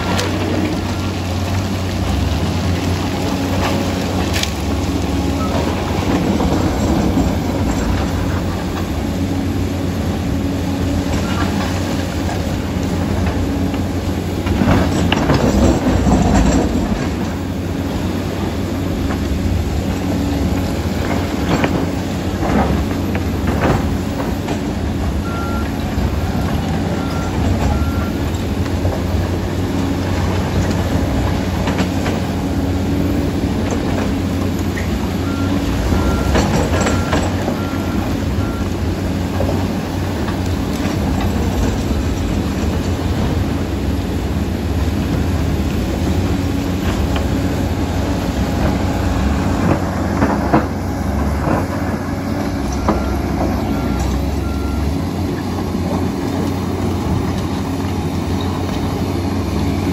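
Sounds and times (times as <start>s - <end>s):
dozer diesel engine running: 0.0s - 59.9s
steel tracks clanking: 5.2s - 10.3s, 11.1s - 59.9s
reversing alarm beeping: 25.2s - 28.2s, 35.2s - 38.8s, 52.6s - 55.0s.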